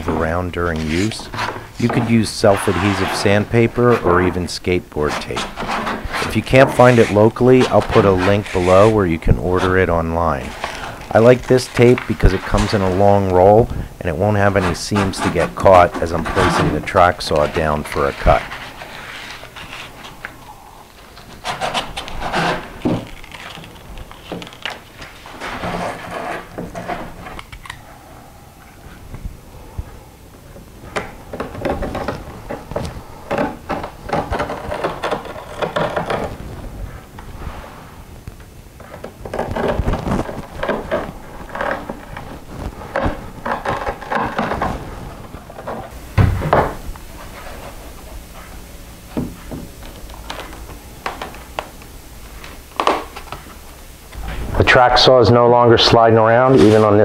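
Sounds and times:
hands rubbing grip tape: 0.0 - 27.8, 38.3 - 46.0
knife scraping grip tape: 5.0 - 9.0
heavy thump: 46.1 - 46.8.

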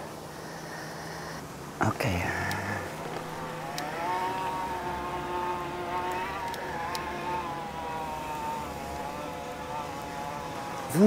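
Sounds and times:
electric bike motor whining: 2.4 - 11.0.

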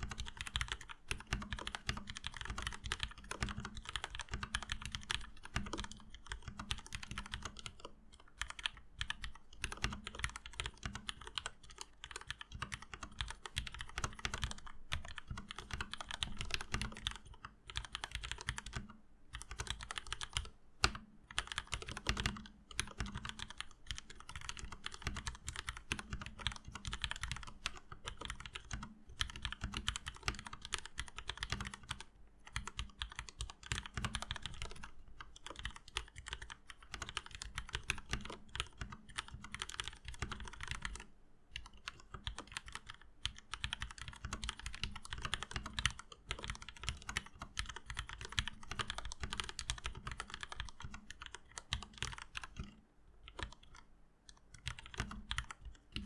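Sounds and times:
mechanical keyboard typing: 0.0 - 56.0.

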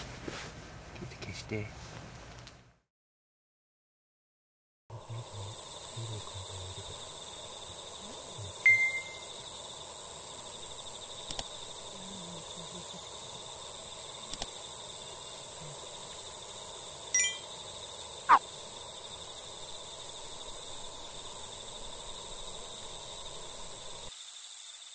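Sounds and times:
high insect trill: 4.9 - 24.9
faint clicks: 11.2 - 11.7, 14.2 - 14.6.

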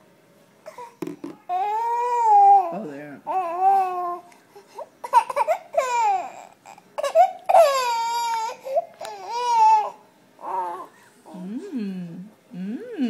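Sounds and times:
infant crying: 1.5 - 2.7, 3.3 - 4.3, 5.0 - 11.0.

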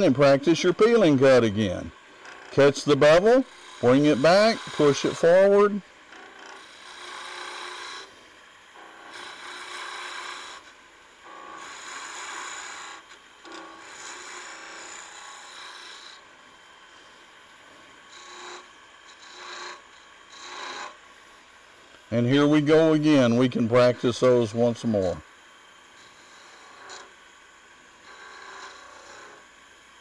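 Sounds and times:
chisel cutting wood on lathe: 0.0 - 21.4, 22.1 - 25.2, 25.9 - 27.2, 28.0 - 29.6.

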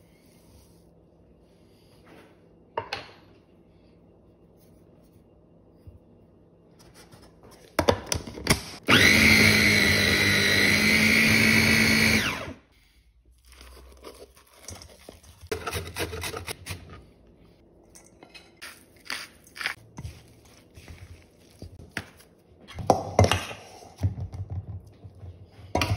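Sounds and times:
food processor chopping: 8.5 - 12.6.

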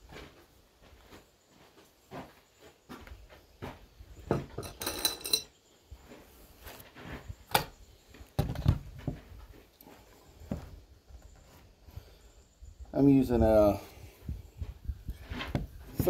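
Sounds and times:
knocks and thuds of handling: 4.2 - 4.9, 8.4 - 9.4, 10.4 - 11.4.

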